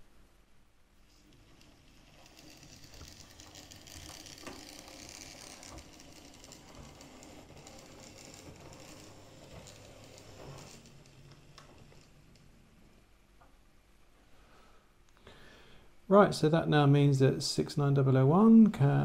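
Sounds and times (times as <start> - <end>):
model train motor whirring: 1.2 - 12.5
wheels clicking over rail joints: 1.3 - 12.5.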